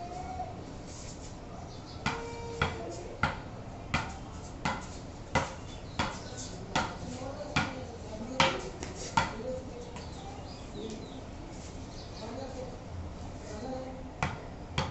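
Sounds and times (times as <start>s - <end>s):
ball bouncing on wooden bat: 2.0s - 7.0s, 7.6s - 7.8s, 8.4s - 9.4s, 14.2s - 14.9s.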